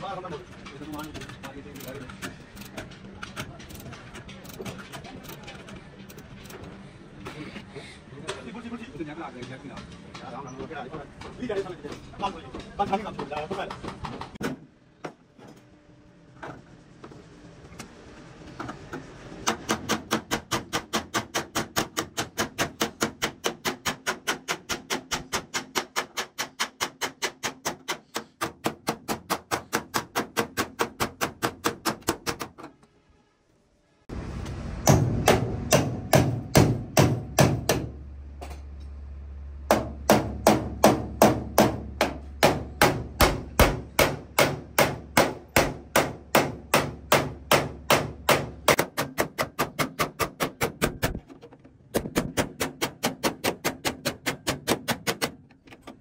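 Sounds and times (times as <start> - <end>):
hammer beating sheet metal: 34.8 - 38.0, 39.7 - 51.2, 52.0 - 55.4.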